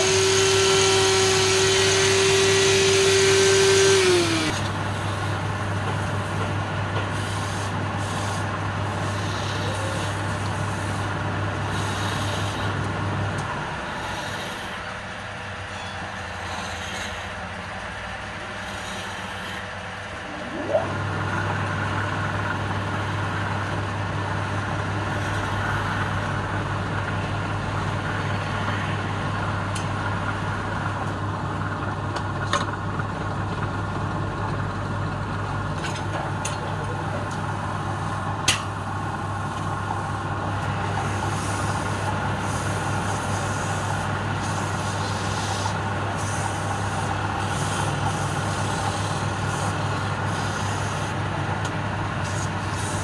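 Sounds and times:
wood lathe running: 0.0 - 5.4, 8.8 - 11.0, 11.7 - 12.7, 13.9 - 14.8, 18.2 - 21.7.

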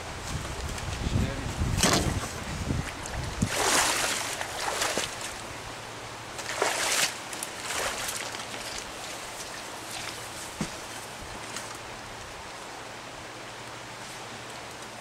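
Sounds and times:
stream rushing: 0.0 - 15.0
nylon backpack and waders rustling: 0.2 - 5.6, 6.4 - 11.8.

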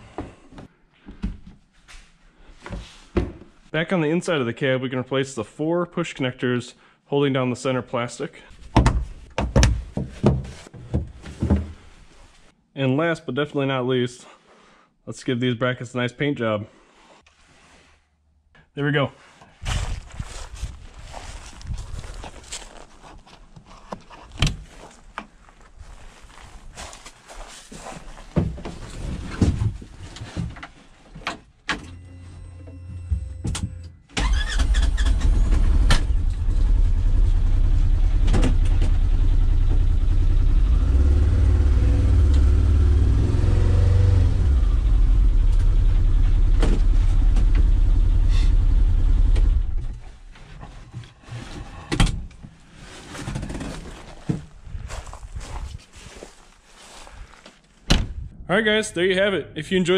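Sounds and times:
engine starting and running: 31.9 - 50.1.

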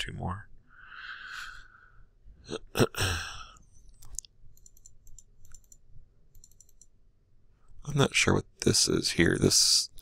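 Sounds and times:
computer mouse clicks: 3.9 - 7.0.

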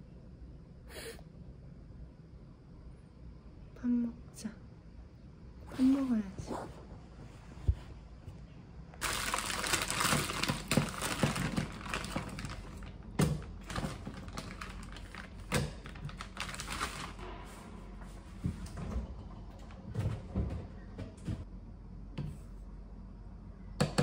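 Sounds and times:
plastic bag crinkling: 9.0 - 17.2.

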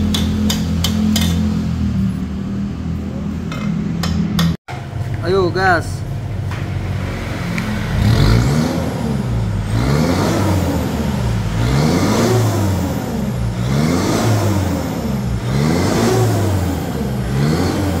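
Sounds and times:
car engine revving: 6.1 - 18.0.

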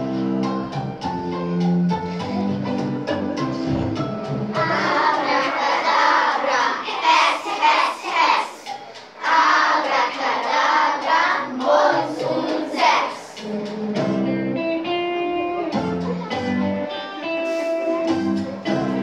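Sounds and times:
instrumental accompaniment: 0.0 - 19.0
children singing: 3.8 - 14.3.

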